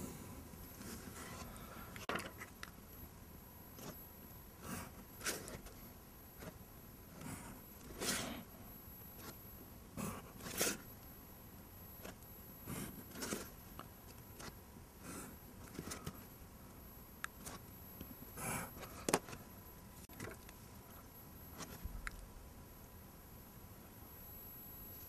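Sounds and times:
pencil scraping on paper: 4.6 - 5.8, 10.0 - 10.9, 12.0 - 13.6.

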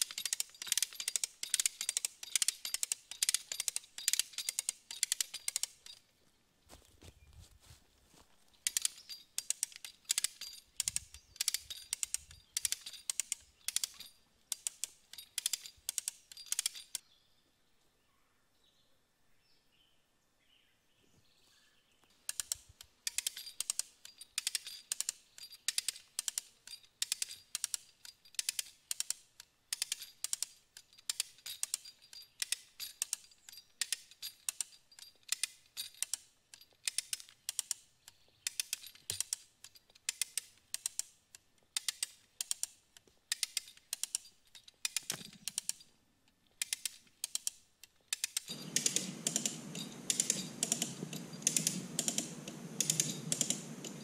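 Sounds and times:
ratchet clicking: 0.0 - 6.0, 8.6 - 17.0, 22.2 - 37.8, 38.5 - 45.8, 46.6 - 54.0.

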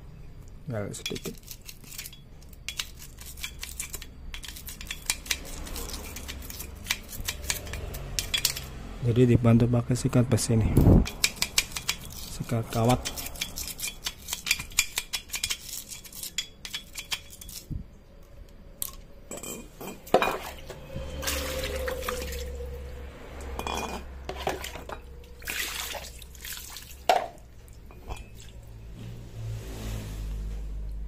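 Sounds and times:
wire brush scrubbing metal: 1.1 - 8.8, 11.1 - 17.7
water pouring and splashing: 20.2 - 22.6, 24.3 - 30.9.

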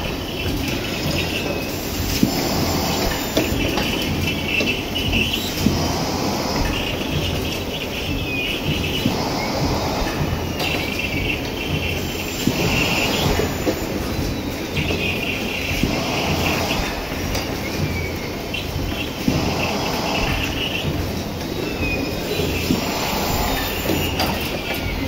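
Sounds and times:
high-pitched machine sound: 0.0 - 25.0
machine mechanical clatter: 0.0 - 25.0.

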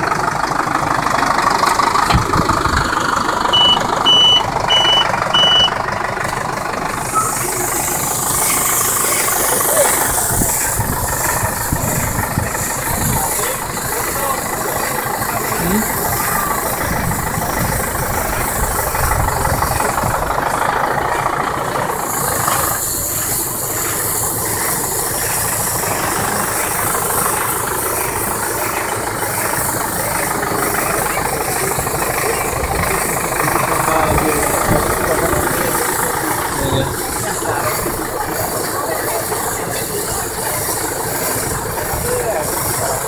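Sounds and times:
tractor engine running: 0.0 - 43.0.

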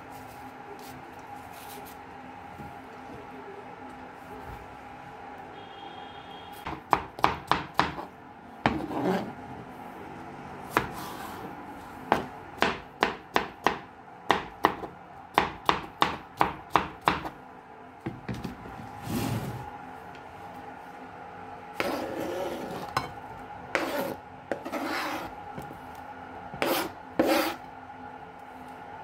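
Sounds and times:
faint steady hum: 0.0 - 29.0
knife chopping on cutting board: 6.7 - 8.1, 8.7 - 9.2, 26.6 - 27.6.

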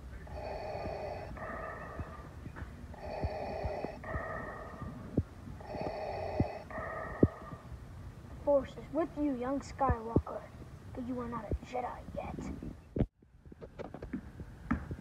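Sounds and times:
mechanical respirator breathing: 0.0 - 7.7.

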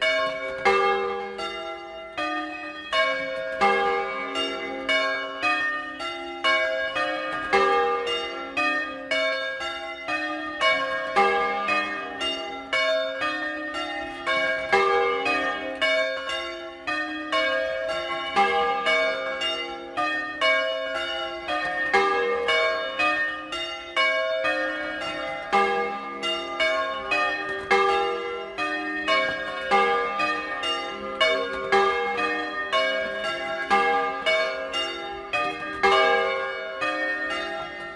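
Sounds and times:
church bells pealing: 0.0 - 37.9.

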